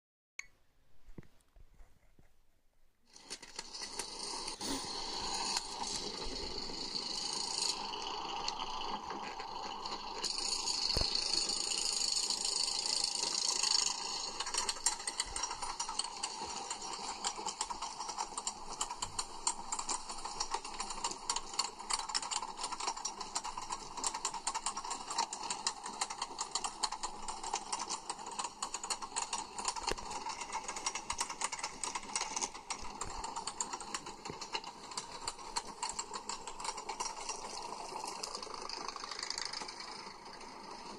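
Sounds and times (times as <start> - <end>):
ratchet clicking: 3.1 - 9.3, 10.2 - 40.8
roller coaster lift chain clatter: 3.1 - 40.9
hissing rush: 4.2 - 8.5.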